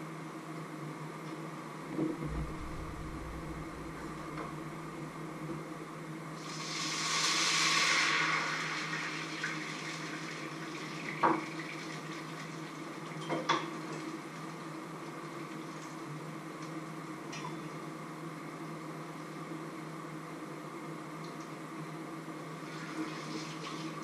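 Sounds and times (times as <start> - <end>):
frying pan sizzling: 6.4 - 12.2.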